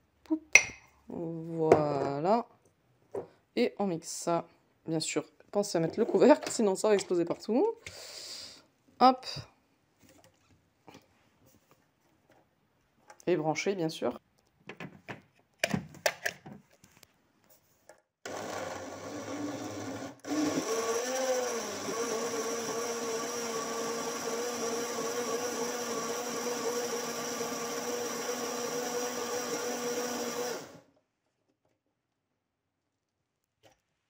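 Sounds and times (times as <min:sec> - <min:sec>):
blender motor blending liquid: 0:18.3 - 0:30.9.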